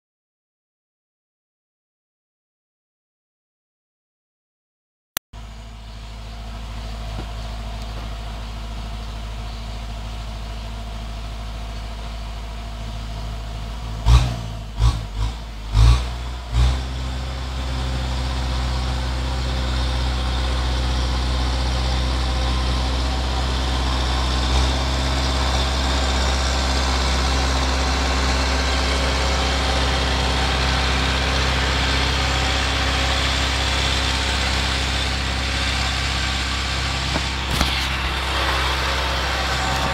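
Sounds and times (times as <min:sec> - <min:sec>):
tractor diesel engine running: 0:05.4 - 0:39.9
sharp thumps: 0:37.0 - 0:38.3.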